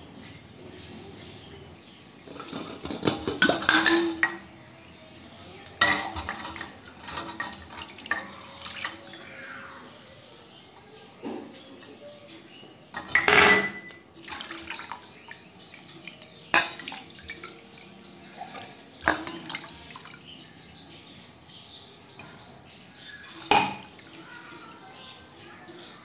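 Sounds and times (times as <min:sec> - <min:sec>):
water sloshing in a metal bowl: 0:02.2 - 0:21.2, 0:22.9 - 0:26.0
glass clinking against steel: 0:03.4 - 0:04.5, 0:13.0 - 0:14.0.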